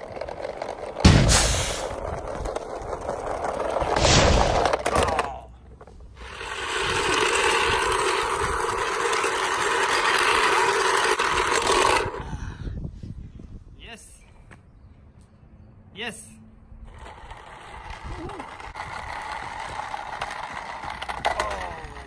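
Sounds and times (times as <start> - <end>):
toy truck wheels rolling on concrete: 0.0 - 12.4, 16.8 - 22.0.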